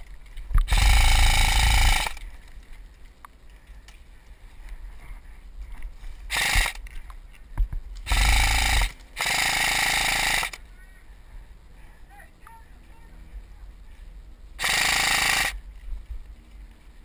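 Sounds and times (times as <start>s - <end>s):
airsoft rifle full-auto bursts: 0.6s - 2.2s, 6.3s - 6.9s, 8.1s - 10.6s, 14.6s - 15.6s.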